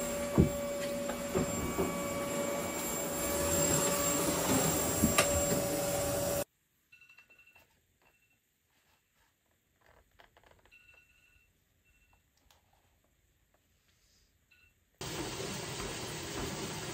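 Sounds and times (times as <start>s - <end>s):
vacuum cleaner whine: 0.0s - 6.5s, 15.0s - 16.9s.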